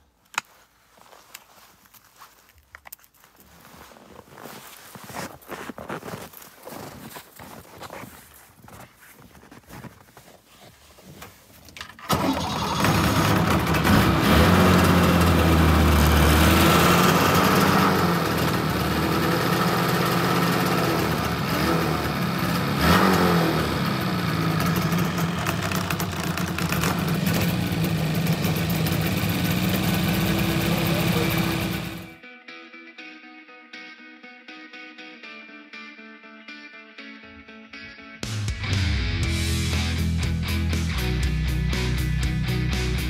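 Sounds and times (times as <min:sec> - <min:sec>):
snowmobile engine starting and revving: 0:11.8 - 0:32.2.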